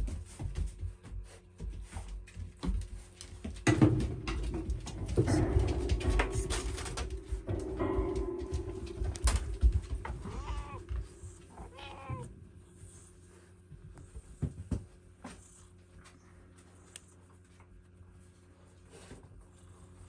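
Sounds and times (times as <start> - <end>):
low thumps: 3.6 - 11.8
cat meowing: 10.3 - 10.8, 11.6 - 12.3.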